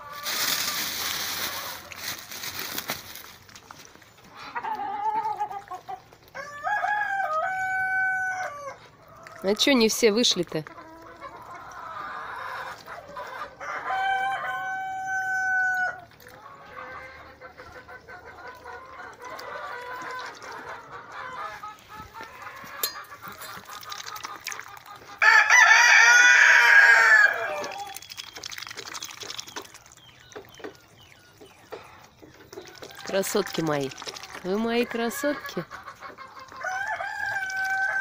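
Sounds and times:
hens clucking: 0:00.0 - 0:29.8, 0:30.4 - 0:38.0
rooster crowing: 0:06.4 - 0:08.8, 0:13.6 - 0:16.0, 0:25.2 - 0:27.9, 0:36.6 - 0:38.0.

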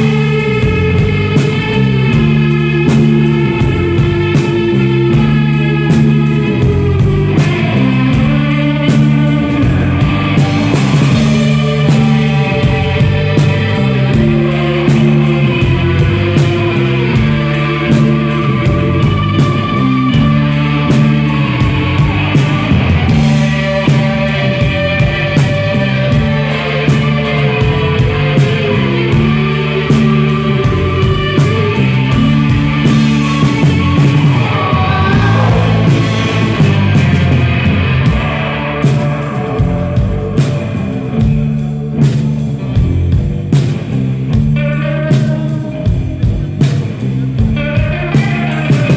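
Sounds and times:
live rock band playing: 0:00.0 - 0:48.9
drum hits: 0:33.5 - 0:38.2.

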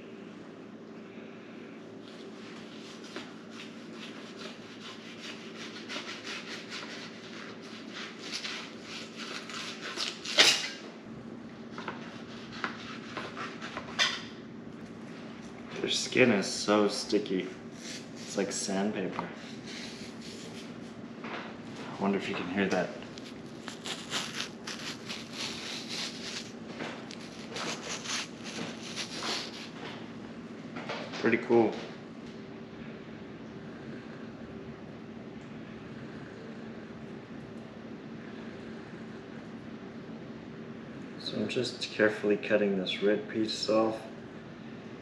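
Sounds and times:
knife rasping on rough fish skin: 0:02.8 - 0:10.8, 0:11.9 - 0:13.9, 0:17.8 - 0:18.4, 0:19.5 - 0:20.9, 0:23.2 - 0:29.8.

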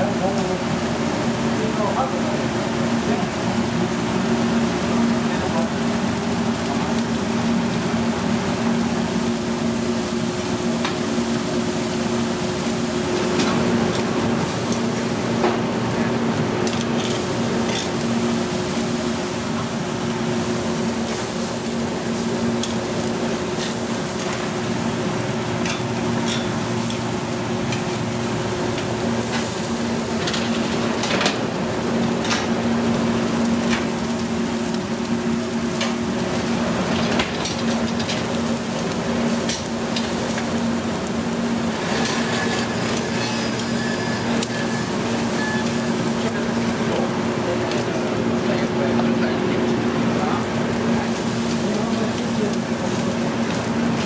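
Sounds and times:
steaks sizzling on grill: 0:00.0 - 0:54.0
metal tongs clicking on grate: 0:25.6 - 0:27.0.

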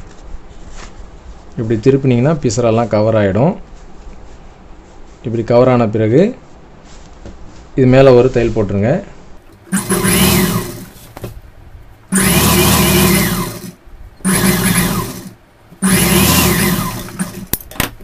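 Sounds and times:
sewing machine stitching fabric: 0:09.5 - 0:11.1, 0:12.1 - 0:17.7.

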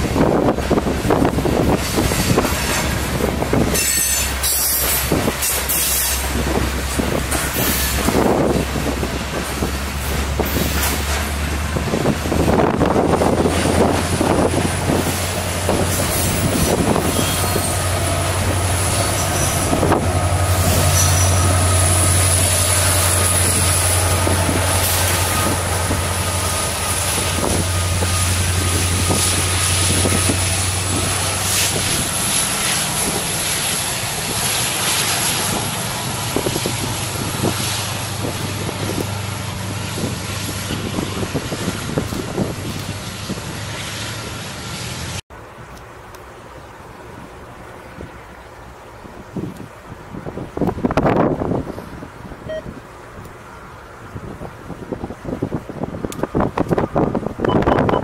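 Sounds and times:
freight train rumbling past: 0:00.0 - 0:58.0
high wheel squeal: 0:03.6 - 0:06.4, 0:07.4 - 0:08.2, 0:15.8 - 0:33.8.

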